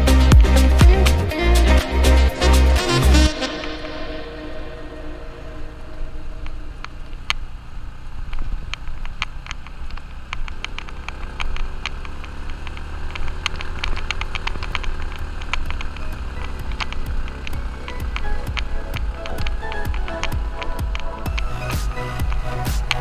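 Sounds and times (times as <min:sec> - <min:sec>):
motorcycle engine: 0:00.0 - 0:23.0
sharp clicks: 0:08.3 - 0:23.0.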